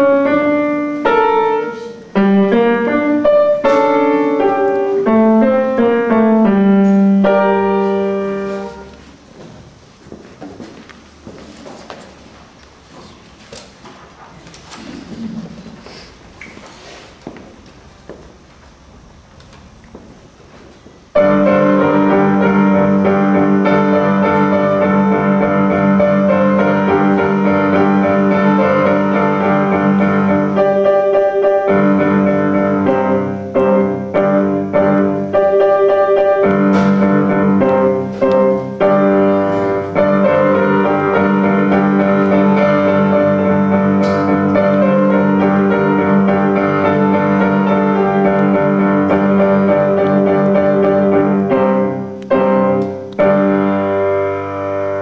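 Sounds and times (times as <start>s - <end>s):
grand piano playing: 0.0s - 9.3s, 21.1s - 55.0s.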